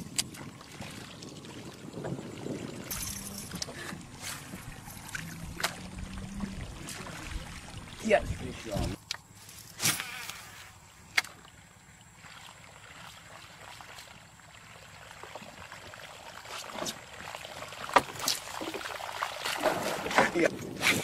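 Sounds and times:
fishing lure splashing on water: 0:02.8 - 0:06.2.

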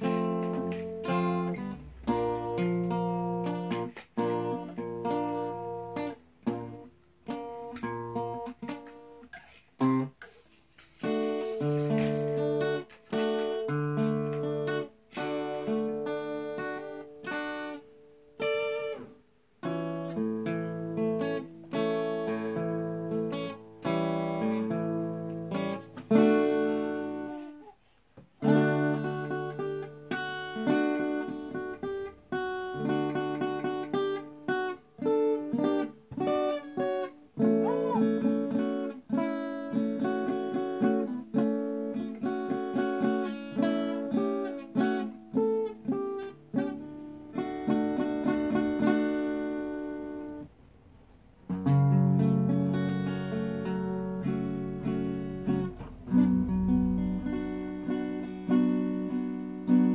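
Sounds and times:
acoustic guitar melody: 0:00.0 - 0:59.9.

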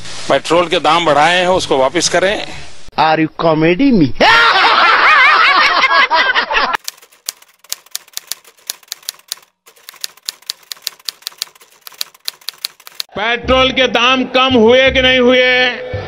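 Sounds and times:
man laughing loudly: 0:04.2 - 0:06.8
typewriter key clicks: 0:06.8 - 0:13.1.

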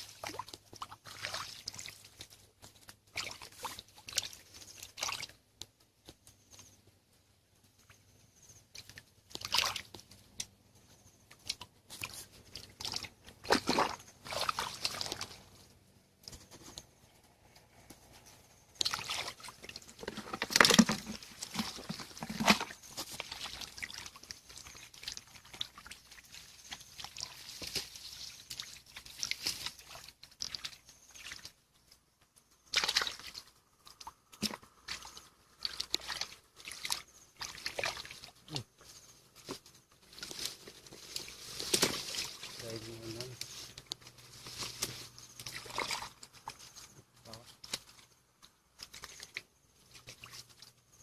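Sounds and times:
splashing of muddy water: 0:00.0 - 0:05.4, 0:08.8 - 0:10.2, 0:11.3 - 0:15.6, 0:18.8 - 0:31.6, 0:32.6 - 0:38.7, 0:45.4 - 0:46.7.

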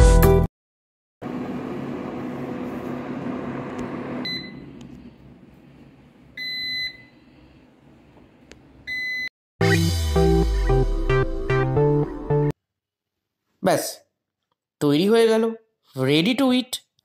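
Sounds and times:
air fryer fan whirring: 0:01.2 - 0:06.7.

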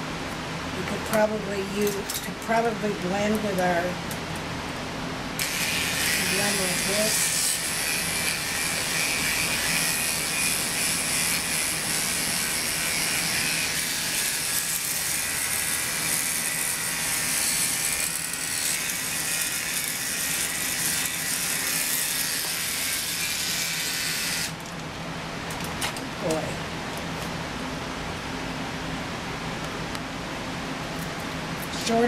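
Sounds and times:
electric clippers buzzing: 0:05.4 - 0:24.7.

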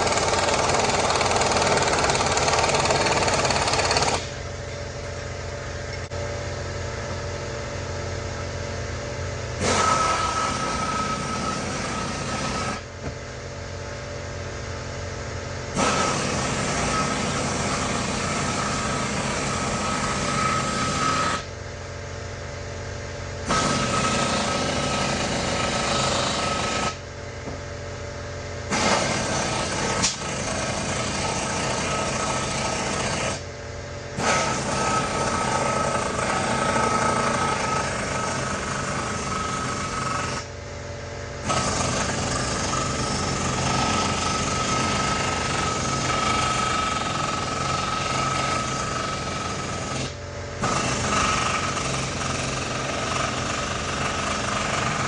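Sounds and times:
pneumatic impact wrench hammering: 0:00.0 - 0:04.8, 0:09.5 - 0:13.2, 0:15.7 - 0:21.6, 0:23.4 - 0:27.6, 0:28.6 - 0:33.5, 0:34.1 - 0:40.6, 0:41.4 - 0:55.0.

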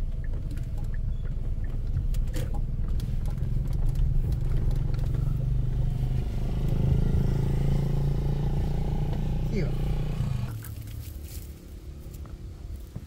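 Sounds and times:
car engine running: 0:00.0 - 0:10.6
road rumble: 0:00.0 - 0:13.0.

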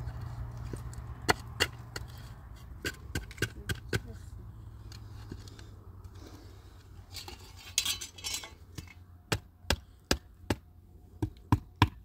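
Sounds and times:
rustling scrape: 0:04.8 - 0:08.6.

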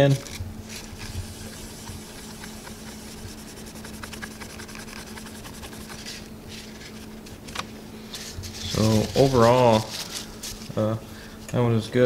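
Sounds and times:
paper napkin rubbing on metal: 0:00.6 - 0:07.3, 0:08.1 - 0:10.9.

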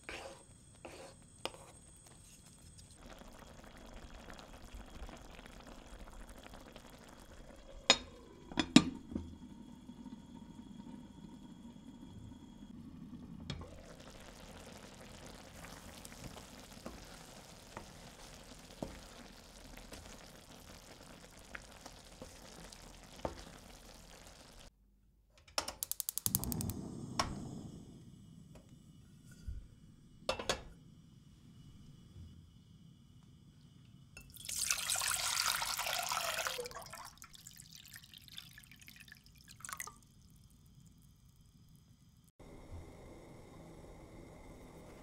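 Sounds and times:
rapid ratcheting clicks: 0:25.8 - 0:26.5.

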